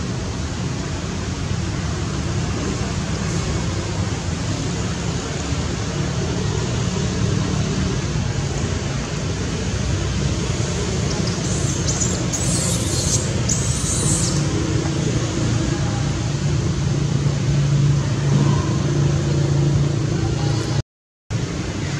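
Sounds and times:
steady outdoor background noise: 0:00.0 - 0:21.9
short high hissing bursts: 0:11.4 - 0:14.5.

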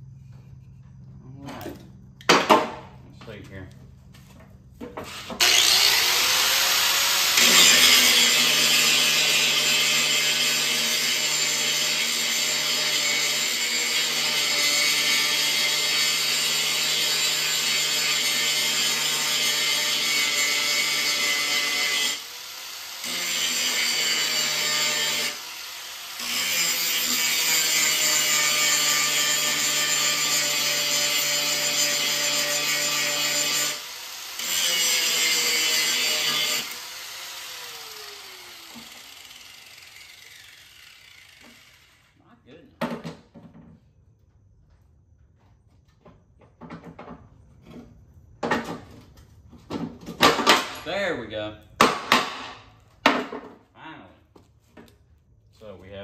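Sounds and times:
electric grinder grinding metal: 0:05.0 - 0:42.2.

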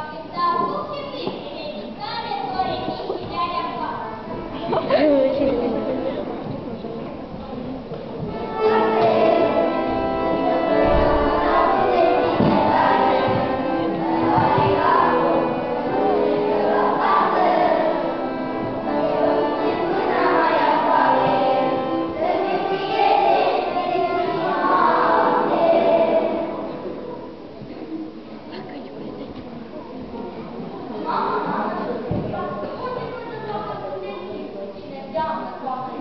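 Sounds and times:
children singing: 0:08.3 - 0:27.3.

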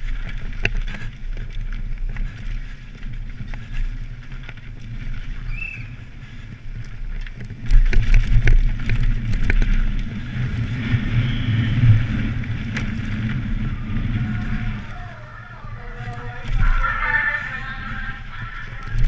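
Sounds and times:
bike clattering and rattling: 0:00.0 - 0:19.0
tyres rumbling over dirt: 0:00.0 - 0:19.0
wind buffeting microphone: 0:00.0 - 0:19.0.

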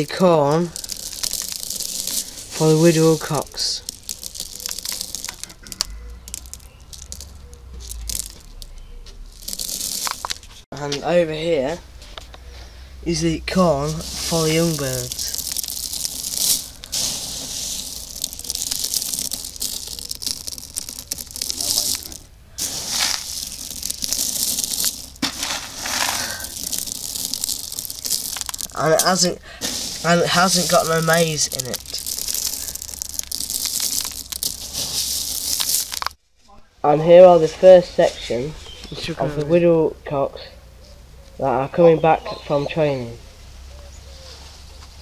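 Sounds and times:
dry grain rustling and clicking: 0:00.0 - 0:10.9, 0:12.0 - 0:36.2.

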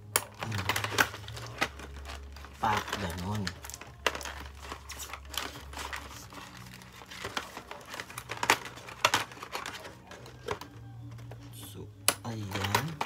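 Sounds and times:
packaging crinkling and rustling: 0:00.0 - 0:13.0
sharp plastic snaps: 0:12.0 - 0:13.0.

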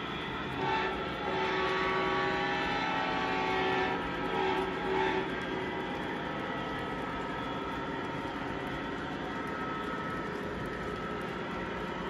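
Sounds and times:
locomotive horn blasts: 0:00.6 - 0:05.3.

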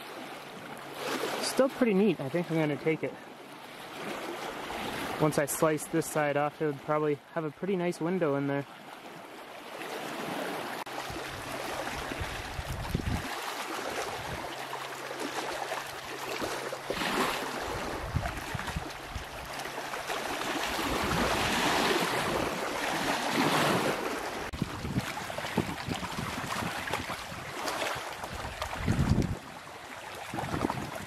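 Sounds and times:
waves lapping on pebbles: 0:00.0 - 0:06.9, 0:08.6 - 0:31.0
wind buffeting microphone: 0:11.0 - 0:14.6, 0:16.9 - 0:19.6, 0:20.5 - 0:31.0.

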